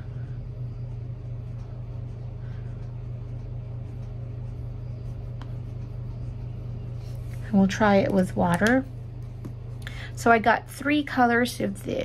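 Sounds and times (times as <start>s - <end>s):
low hum: 0.0s - 12.0s
pen scratching on paper: 3.2s - 7.0s.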